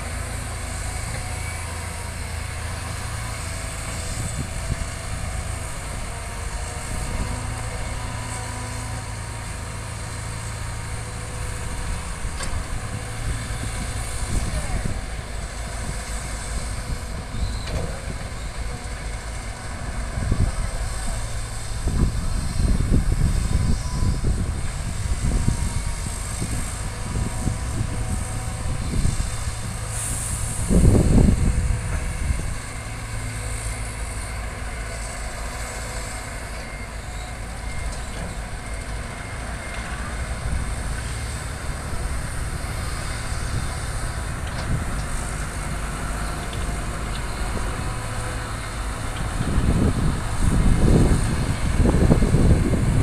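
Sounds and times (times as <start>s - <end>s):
excavator diesel engines rumbling: 0.0s - 53.0s.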